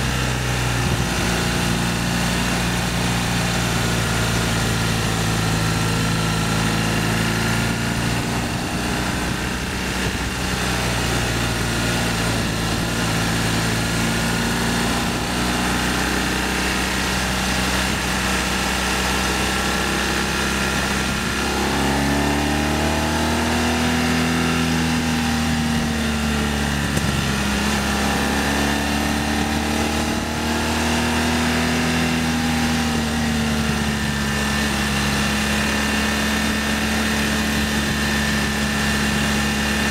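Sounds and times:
motorcycle engine running: 0:00.0 - 0:39.9
wind noise: 0:00.2 - 0:02.0, 0:07.2 - 0:14.0, 0:24.7 - 0:28.9.

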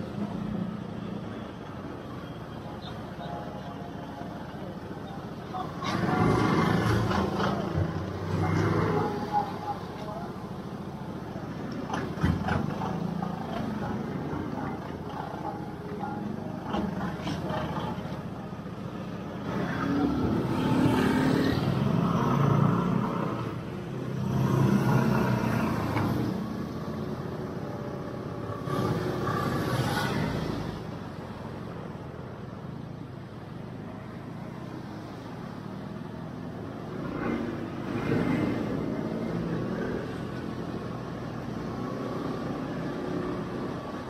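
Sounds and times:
road traffic: 0:00.0 - 0:44.0
vehicles passing close by: 0:00.0 - 0:44.0.

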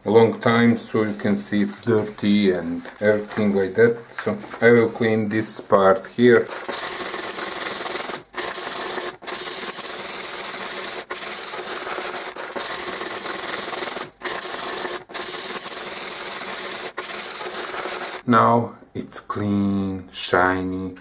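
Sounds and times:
sandpaper rubbing on copper: 0:06.3 - 0:18.2.

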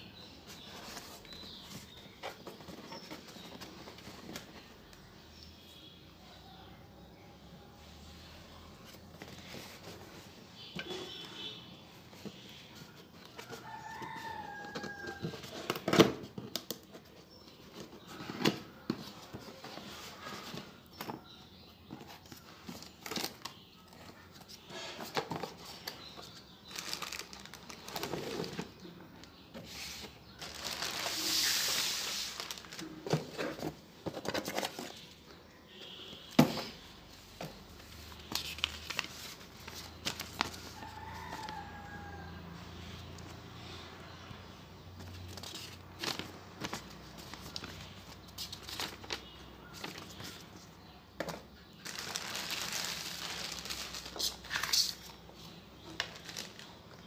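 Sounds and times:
plastic bag rustling: 0:26.6 - 0:28.7, 0:30.4 - 0:34.2, 0:51.8 - 0:55.2.

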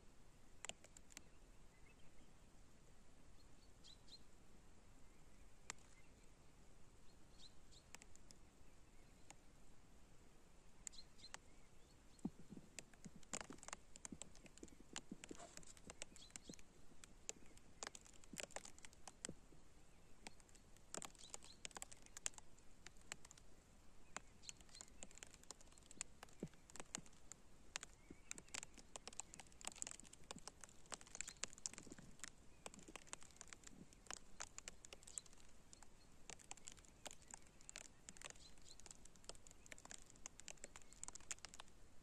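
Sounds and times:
light clicks and ticks: 0:00.6 - 0:01.3, 0:05.6 - 0:06.1, 0:07.7 - 0:08.4, 0:10.8 - 0:11.5, 0:12.1 - 0:19.4, 0:20.2 - 0:41.8.

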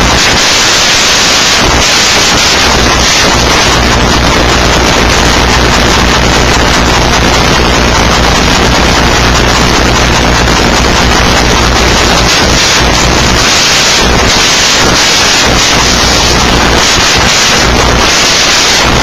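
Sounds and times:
static-like hiss: 0:00.0 - 0:19.0
low hum: 0:02.6 - 0:18.0.

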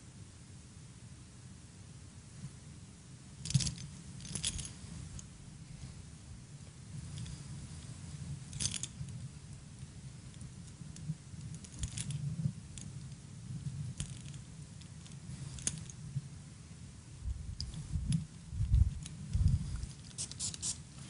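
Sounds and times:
handling clicks and rustles: 0:03.4 - 0:05.3, 0:06.6 - 0:16.1, 0:17.6 - 0:21.0.

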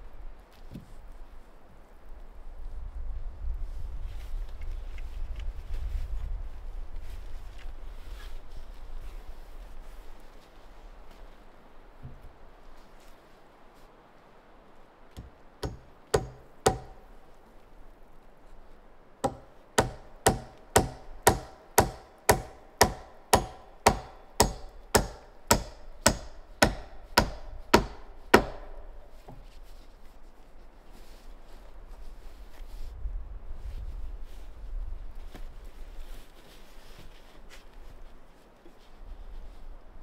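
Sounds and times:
hammer striking wooden beam: 0:15.2 - 0:17.2, 0:19.2 - 0:29.5.

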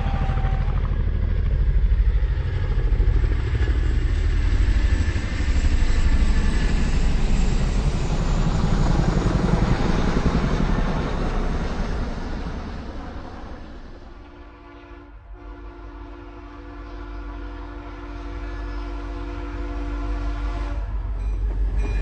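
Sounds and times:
vehicle engine pulsing drone: 0:00.0 - 0:14.6.

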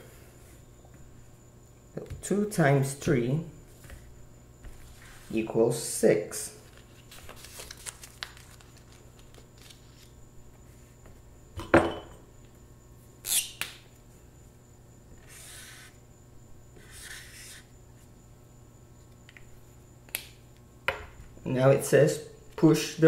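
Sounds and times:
marker writing on paper: 0:15.2 - 0:16.0, 0:16.8 - 0:17.7.

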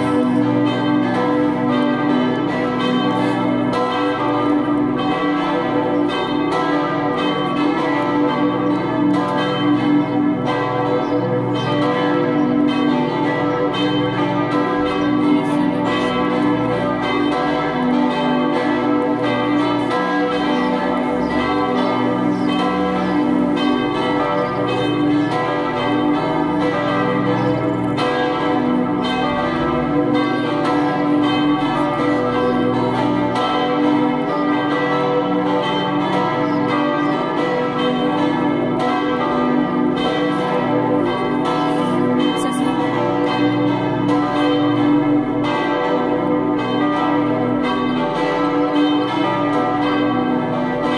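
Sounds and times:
church bells ringing in peal: 0:00.0 - 0:50.9.

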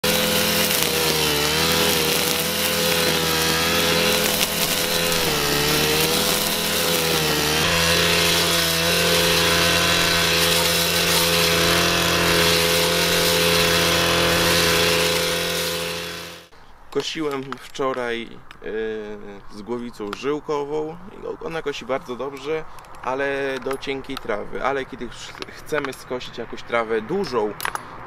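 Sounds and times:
brush cutter engine running: 0:00.0 - 0:16.5.

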